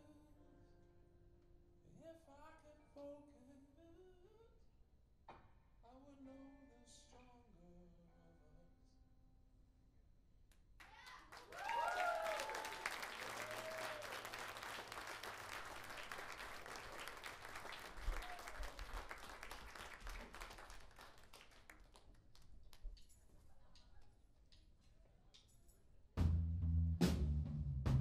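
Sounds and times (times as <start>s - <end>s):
whoops: 10.8s - 14.4s, 18.0s - 19.0s
audience clapping and cheering: 10.8s - 22.5s.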